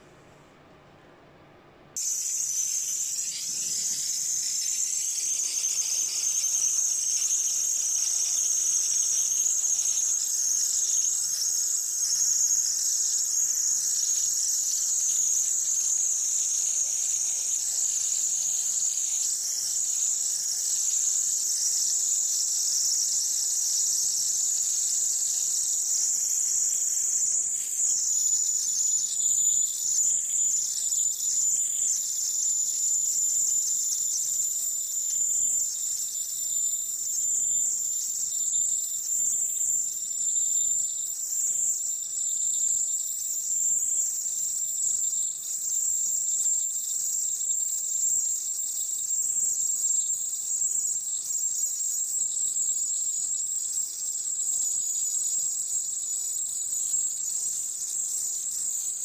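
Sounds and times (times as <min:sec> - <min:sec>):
gas torch hissing: 0:02.0 - 0:07.3.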